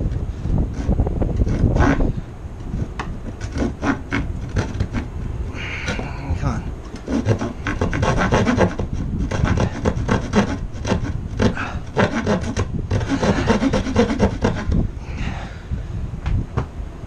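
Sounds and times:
hand saw cutting wood: 0.7s - 2.1s, 3.2s - 5.1s, 6.9s - 14.8s.

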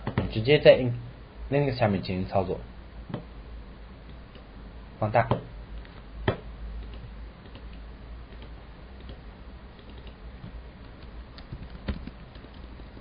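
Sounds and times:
steady low hum: 0.0s - 13.0s
computer keyboard and mouse clicks: 5.8s - 13.0s.

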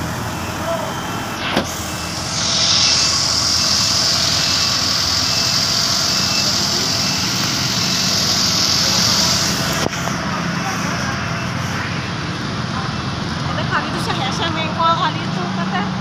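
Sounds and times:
forklift engine running: 0.0s - 16.0s
loud high hiss: 0.1s - 10.2s
faint repeating beep: 0.2s - 9.4s.

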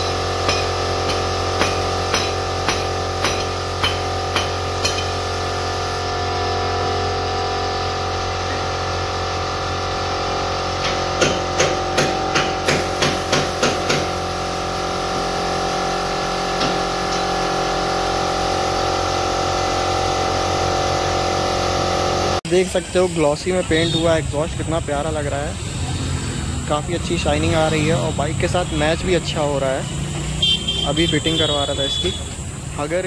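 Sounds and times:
spray gun hissing: 0.0s - 6.0s, 12.6s - 22.4s
mechanical hum: 0.0s - 31.1s.

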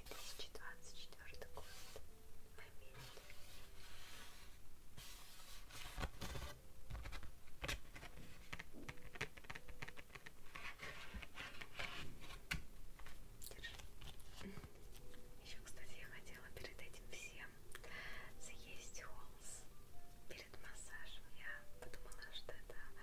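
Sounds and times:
paper cards crinkling and tapping: 5.7s - 15.2s.

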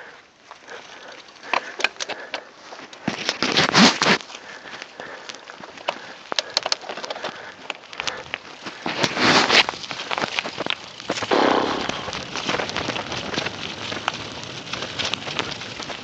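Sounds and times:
bike rattling over bumps: 0.0s - 16.0s
tyres crackling over leaves: 0.0s - 16.0s
rush of noise: 11.2s - 12.2s.

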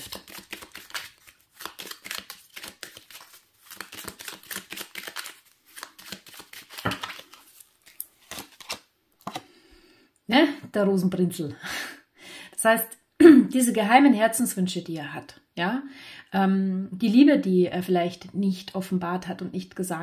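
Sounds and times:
cards clicking and flicking: 0.0s - 9.4s.

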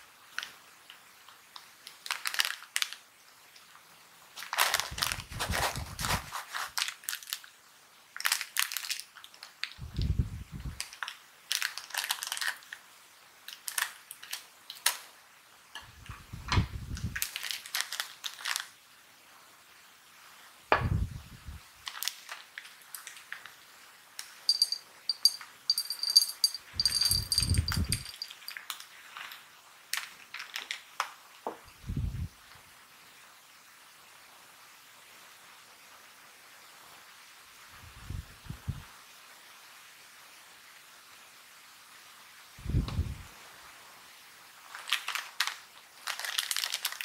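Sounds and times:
foil snack bag crinkling: 1.8s - 3.0s, 4.4s - 7.6s, 8.2s - 9.8s, 10.8s - 15.1s, 17.2s - 18.8s, 21.8s - 23.6s, 28.0s - 31.2s, 44.6s - 47.0s
peas rattling into a dish: 24.5s - 28.8s.

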